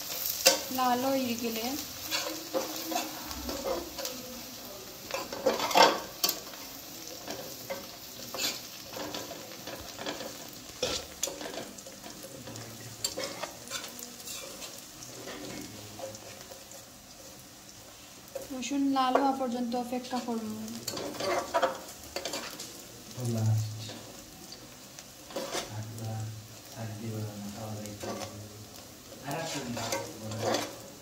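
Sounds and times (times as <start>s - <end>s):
garlic sizzling in oil: 0.0s - 31.0s
spatula scraping pan: 1.8s - 4.2s, 5.1s - 16.6s, 20.2s - 22.8s, 25.2s - 25.8s, 27.9s - 28.4s, 29.4s - 30.9s.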